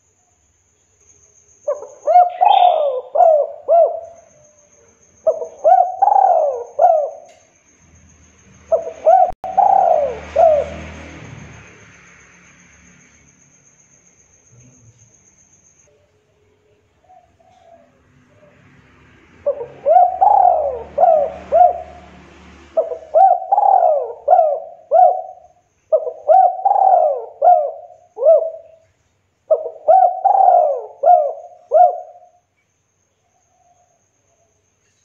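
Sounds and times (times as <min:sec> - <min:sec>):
dove cooing: 0:01.7 - 0:04.4, 0:05.2 - 0:07.4, 0:08.7 - 0:11.1, 0:16.7 - 0:18.6, 0:19.4 - 0:22.1, 0:22.7 - 0:28.8, 0:29.5 - 0:32.4.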